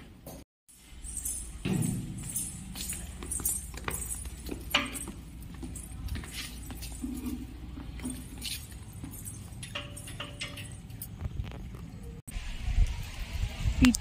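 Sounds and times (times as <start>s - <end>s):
footstep scuffs: 0.2s - 9.8s
keys jangling: 0.7s - 11.2s.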